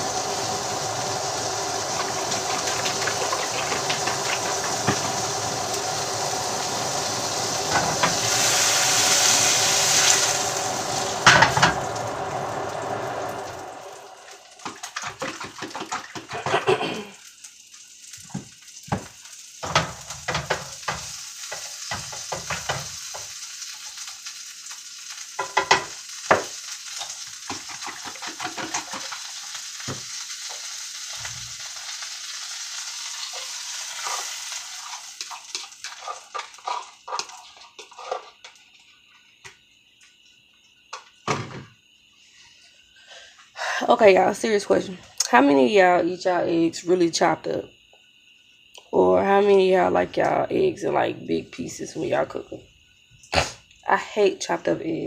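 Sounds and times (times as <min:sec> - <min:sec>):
low hum: 0:00.0 - 0:14.6
steady hiss: 0:00.0 - 0:15.0, 0:16.6 - 0:46.7.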